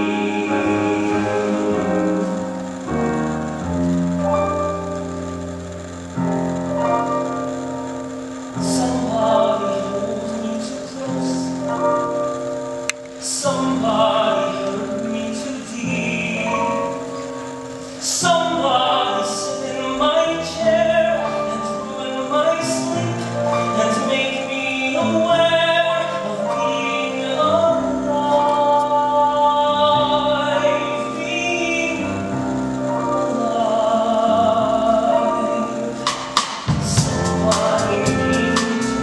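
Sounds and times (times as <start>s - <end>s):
man singing with vibrato: 0.0s - 5.4s, 6.1s - 39.0s
grand piano: 0.0s - 39.0s
small orchestra: 0.0s - 39.0s.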